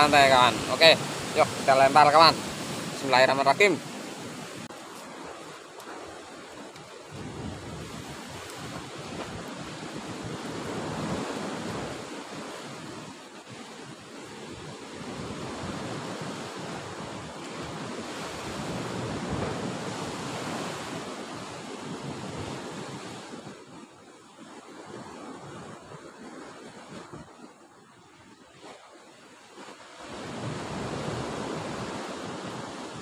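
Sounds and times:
sea surf breaking on rocks: 0:00.0 - 0:14.3, 0:14.9 - 0:23.4
wind on microphone: 0:05.2 - 0:13.1, 0:15.0 - 0:21.2.

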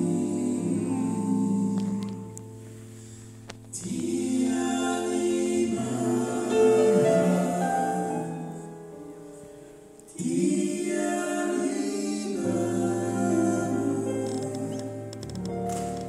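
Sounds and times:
men singing harmonies: 0:00.0 - 0:02.3, 0:03.8 - 0:08.8, 0:10.1 - 0:15.1.

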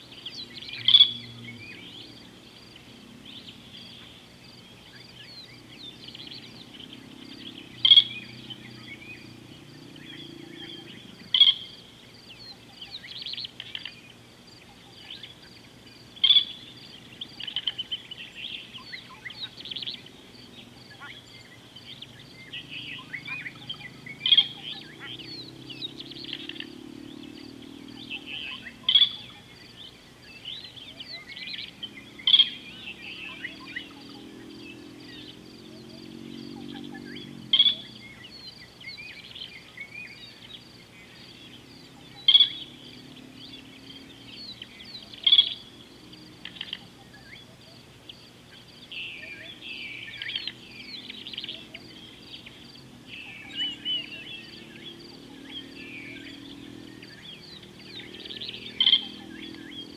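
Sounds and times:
birds chirping: 0:00.0 - 0:59.9.

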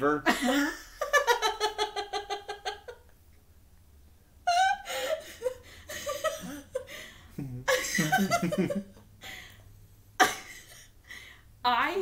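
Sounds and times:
woman laughing: 0:00.3 - 0:03.0, 0:04.5 - 0:09.4, 0:10.2 - 0:10.9.

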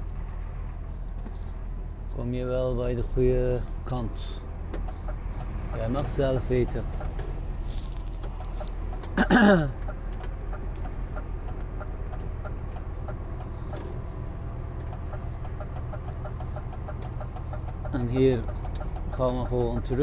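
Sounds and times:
truck engine droning: 0:00.0 - 0:20.0
faint regular ticking: 0:14.7 - 0:20.0.

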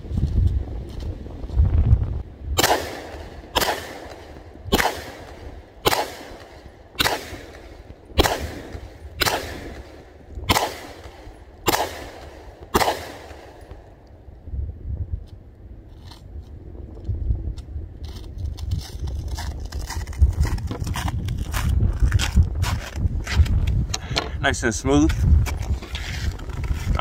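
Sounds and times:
pistol shots: 0:02.6 - 0:13.9.

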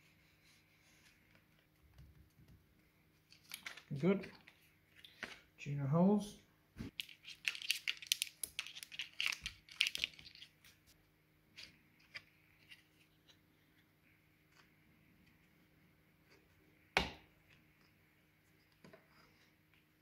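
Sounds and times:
faint crinkles of handling: 0:00.0 - 0:05.5, 0:06.9 - 0:16.6.

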